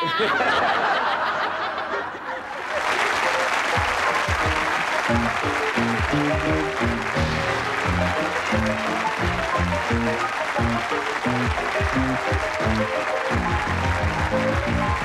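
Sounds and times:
audience applauding: 0.0 - 15.0
audience laughing: 0.0 - 15.0
closing theme music: 3.0 - 15.0.

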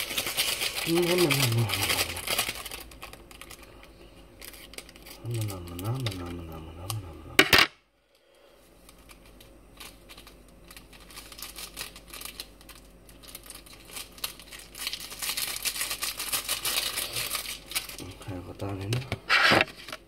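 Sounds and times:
plastic sachet crinkling: 0.0 - 7.0, 8.8 - 20.0.

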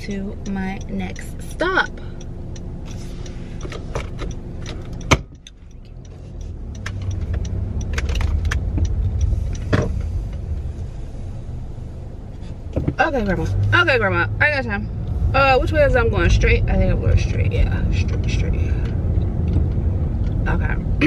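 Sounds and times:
car engine and road noise: 0.0 - 21.0
clicking and rattling in car: 0.0 - 21.0.

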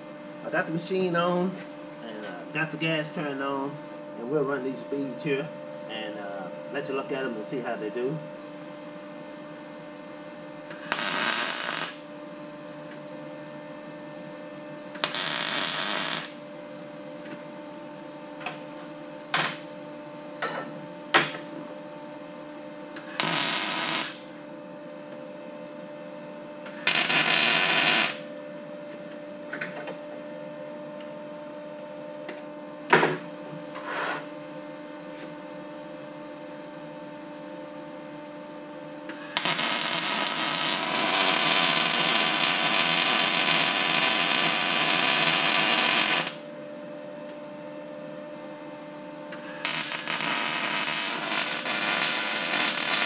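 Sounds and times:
steady hum: 0.0 - 53.0
welding arc bursts: 10.7 - 12.1, 15.0 - 16.4, 23.0 - 24.3, 26.7 - 28.3, 39.1 - 46.4, 49.4 - 53.0.

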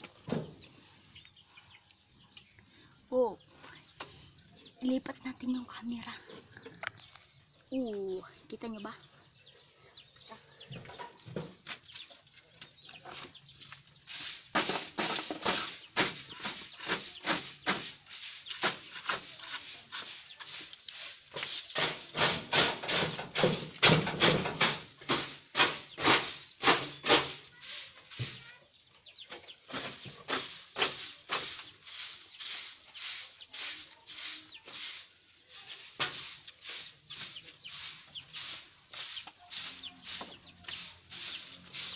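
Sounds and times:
stick broom sweeping floor: 13.1 - 28.6, 29.6 - 41.9.

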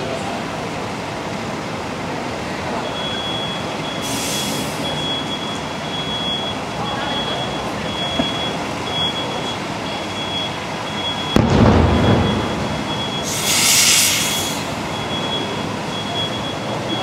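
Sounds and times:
burst of hiss: 4.0 - 4.8, 13.2 - 14.8
low rumbling boom: 11.3 - 13.2.

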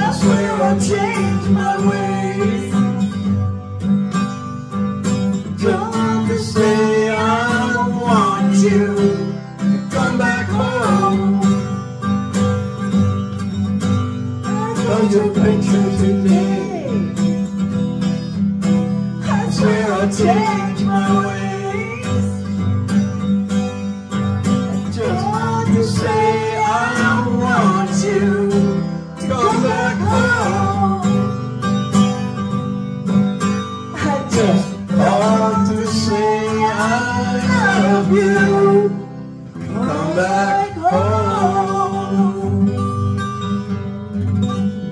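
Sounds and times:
people singing into microphones: 0.0 - 3.4, 5.4 - 11.8, 14.4 - 17.3, 19.2 - 22.4, 24.8 - 31.3, 34.0 - 42.8
acoustic guitar: 0.0 - 44.9.

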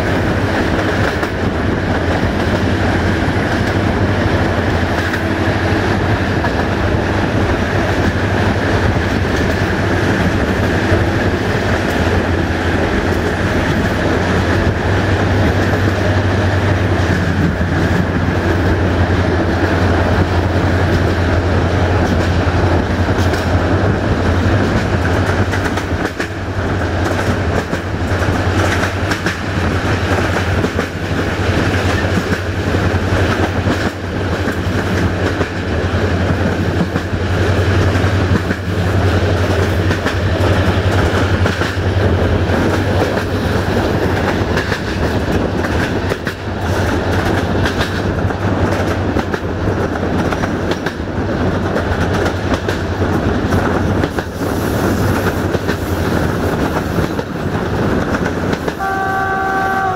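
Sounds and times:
clickety-clack over rail joints: 0.0 - 59.9
train wheels rumbling on rails: 0.0 - 59.9.

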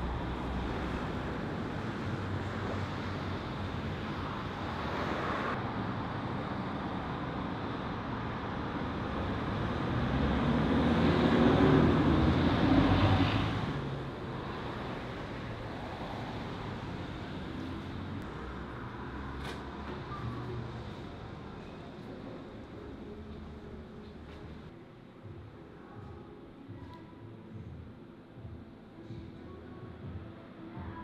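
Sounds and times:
street traffic: 0.0 - 31.0
vehicle passing close by: 9.4 - 18.4.

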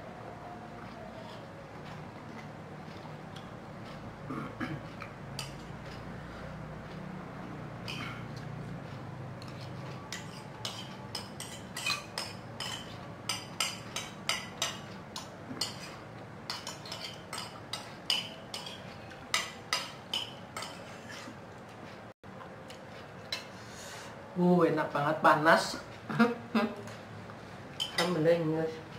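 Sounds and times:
spoons clinking against plates: 9.4 - 21.3, 27.8 - 28.2.

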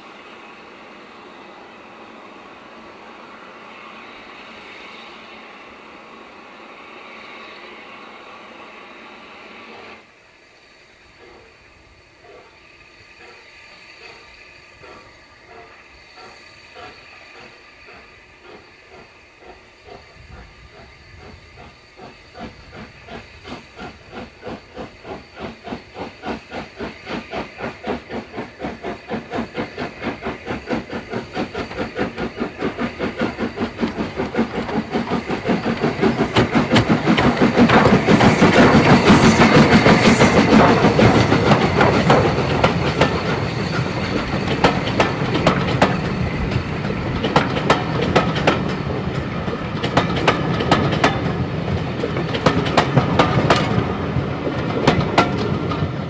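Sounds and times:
steam locomotive exhaust beating: 10.6 - 56.0
carriage wheels clacking over rail joints: 21.6 - 56.0.

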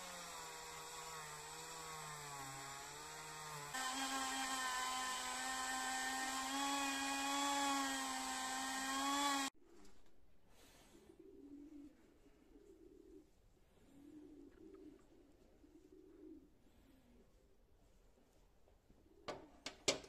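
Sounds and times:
rotary tool whining: 0.0 - 9.6.

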